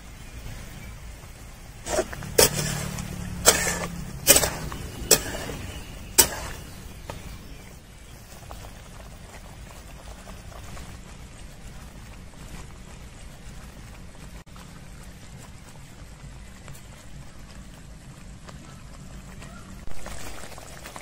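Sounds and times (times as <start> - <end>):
metal spatula clanking on steel pan: 2.2 - 6.7.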